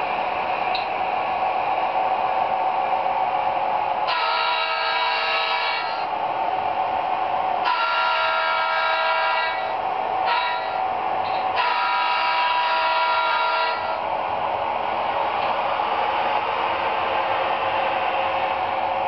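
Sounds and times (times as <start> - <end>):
steady engine sound: 0.0 - 4.1, 13.8 - 19.0
model train diesel horn: 4.0 - 6.1, 7.6 - 14.0.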